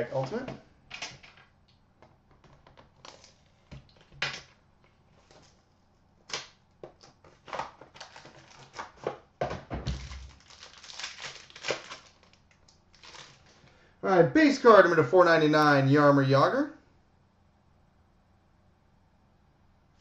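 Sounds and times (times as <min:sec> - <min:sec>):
packaging rustling: 0:02.4 - 0:05.7, 0:06.8 - 0:09.2, 0:09.9 - 0:13.8.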